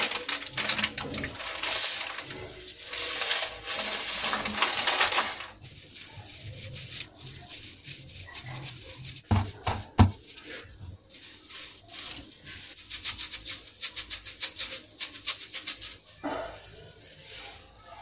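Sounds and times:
dry spaghetti strands clicking: 0.0s - 18.0s.

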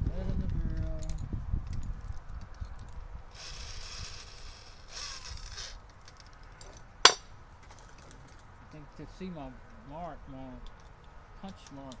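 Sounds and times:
sharp metallic clink: 6.1s - 7.3s.

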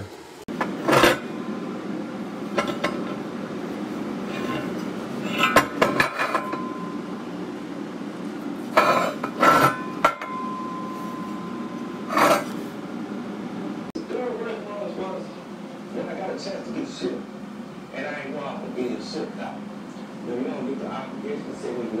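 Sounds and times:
steady low hum: 0.0s - 22.0s
metal parts clanking on workbench: 2.6s - 3.2s, 4.3s - 6.8s, 8.8s - 10.4s, 12.1s - 12.6s.

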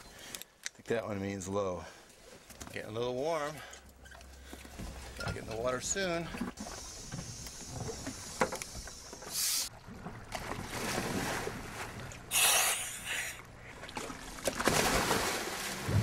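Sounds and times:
moving water: 0.0s - 16.0s
wind: 0.0s - 16.0s
divers splashing into water: 14.0s - 16.0s.

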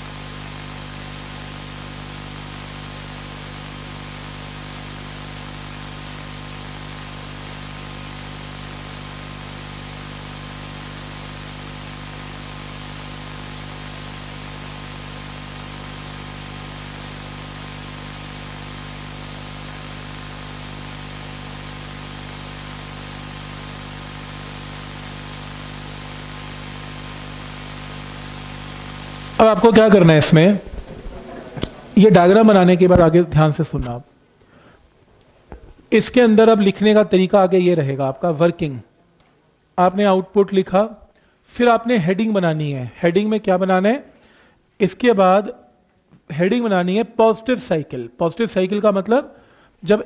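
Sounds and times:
static hiss: 0.0s - 38.9s
low electrical hum: 0.0s - 50.0s.

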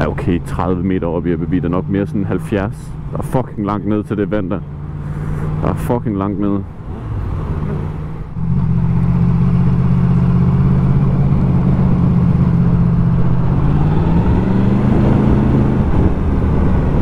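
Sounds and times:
motorcycle engine running: 8.4s - 13.7s.

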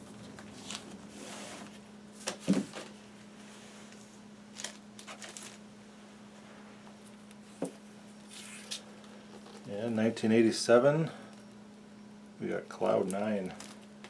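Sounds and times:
faint steady hum: 0.0s - 14.0s
paper rustles: 4.6s - 5.6s.

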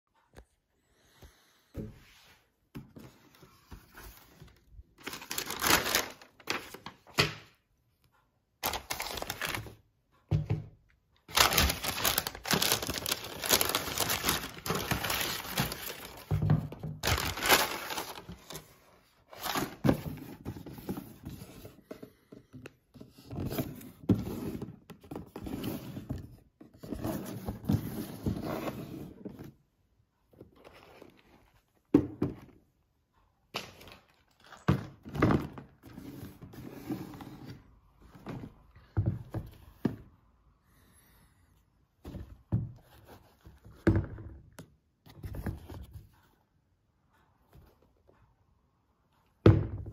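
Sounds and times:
tissue paper rustling: 3.5s - 7.1s, 8.6s - 9.8s, 11.3s - 16.3s, 17.0s - 19.8s
cardboard box being opened: 11.3s - 16.3s, 17.0s - 18.6s.

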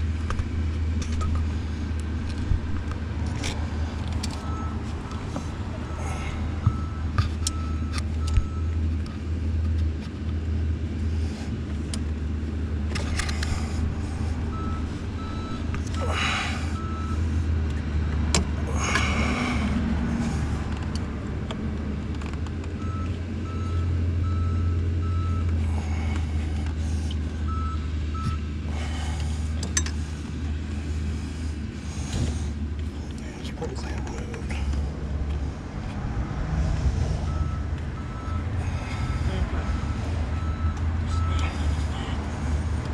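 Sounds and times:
vehicle engine idling: 0.0s - 42.9s
hand tool clicks and rustles: 0.1s - 5.6s
short repeated beeps: 4.4s - 4.8s, 13.6s - 16.0s, 37.3s - 39.1s.

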